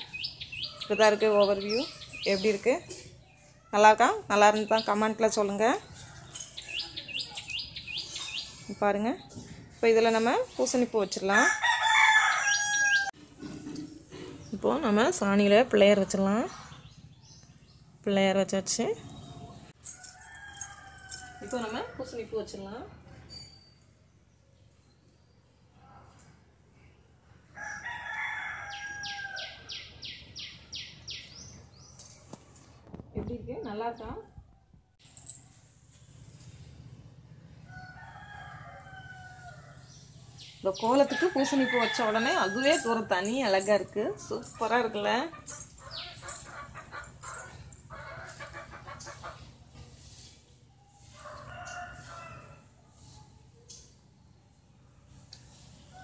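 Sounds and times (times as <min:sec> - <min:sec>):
faint rooster crowing: 0:11.4 - 0:13.2, 0:27.5 - 0:29.8, 0:37.6 - 0:40.0, 0:50.8 - 0:53.5
rooster crowing: 0:11.4 - 0:13.2, 0:27.6 - 0:29.7, 0:41.0 - 0:42.9
small bird calling: 0:45.4 - 0:49.4.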